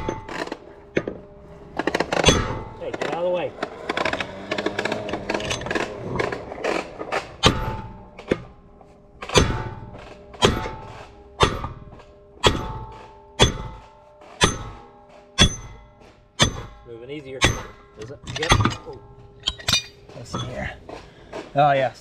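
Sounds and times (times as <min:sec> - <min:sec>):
hammer striking steel punch: 0:02.1 - 0:03.2, 0:07.4 - 0:08.5, 0:09.2 - 0:20.6.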